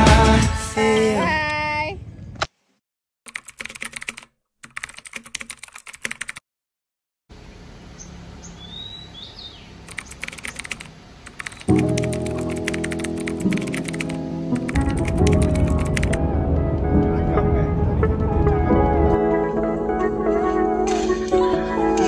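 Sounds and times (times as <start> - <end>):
background music: 0.0 - 1.3, 11.7 - 22.0
keyboard typing: 3.3 - 6.4, 9.9 - 16.2
quiet outdoor ambience: 7.3 - 11.7
faint bird chirps: 7.9 - 10.7.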